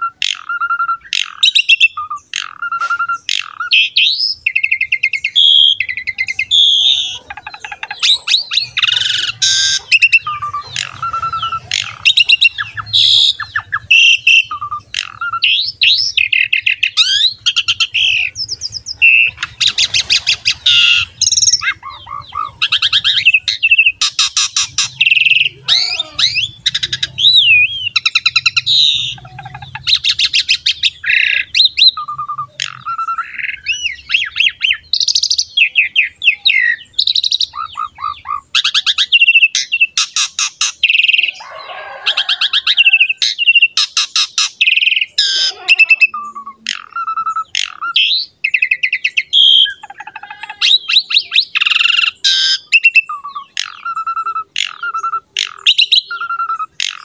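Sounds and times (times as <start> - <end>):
starling singing: 0.0 - 57.0.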